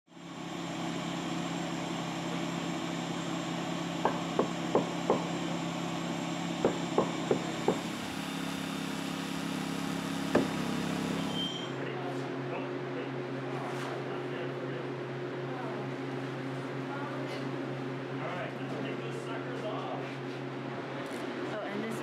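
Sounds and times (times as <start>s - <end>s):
vacuum machine running: 0.1s - 13.2s
sharp knocks: 4.0s - 5.4s, 6.6s - 7.9s, 10.3s - 10.6s.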